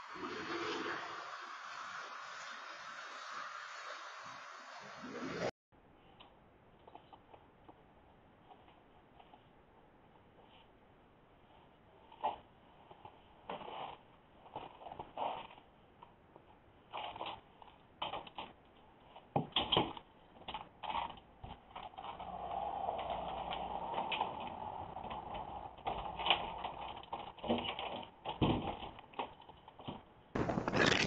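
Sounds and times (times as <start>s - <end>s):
storm door clicks and scrapes: 20.9s - 31.0s.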